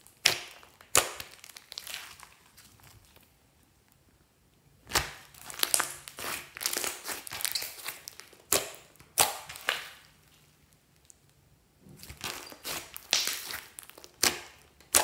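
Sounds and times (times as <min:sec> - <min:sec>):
slime squelching: 0:00.0 - 0:03.4, 0:04.8 - 0:11.2, 0:11.9 - 0:15.0
slime popping: 0:12.0 - 0:15.0.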